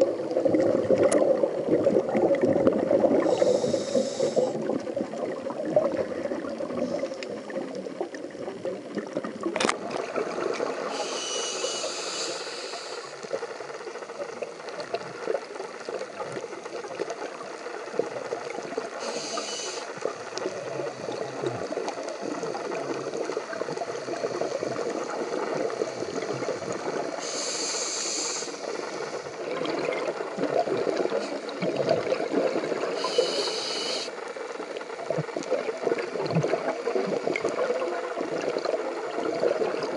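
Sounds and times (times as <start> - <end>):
bubbly water rumble: 0.0 - 11.0, 13.3 - 19.0, 19.9 - 27.2, 28.7 - 33.1, 34.2 - 39.9
diver breathing through regulator: 3.1 - 4.7, 10.8 - 13.2, 19.0 - 20.0, 27.2 - 29.4, 32.9 - 34.2.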